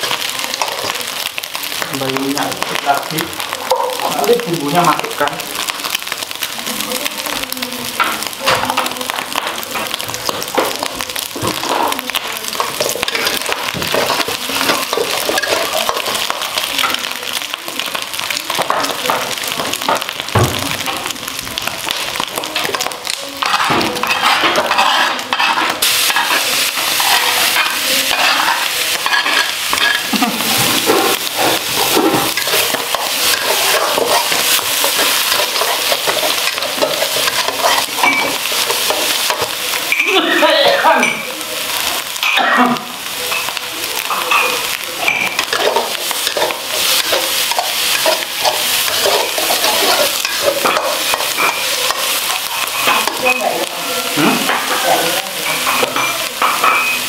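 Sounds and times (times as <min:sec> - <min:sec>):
food sizzling in hot oil: 0:00.0 - 0:57.0
metal spatula scraping a wok: 0:23.4 - 0:40.8, 0:44.1 - 0:53.6.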